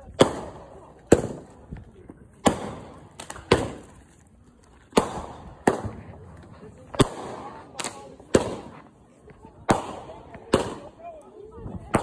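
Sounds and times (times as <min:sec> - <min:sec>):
fireworks bangs: 0:00.0 - 0:01.8, 0:02.4 - 0:04.0, 0:04.9 - 0:08.8, 0:09.6 - 0:11.0
small firework pops: 0:00.0 - 0:04.0, 0:04.7 - 0:08.8, 0:09.6 - 0:11.0.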